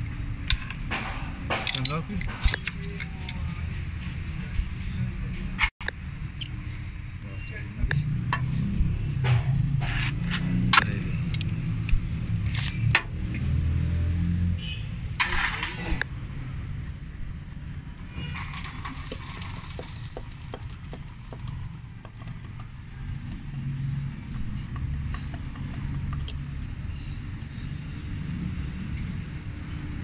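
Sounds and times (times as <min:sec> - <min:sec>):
metallic clicks of tools: 0:00.5 - 0:03.4.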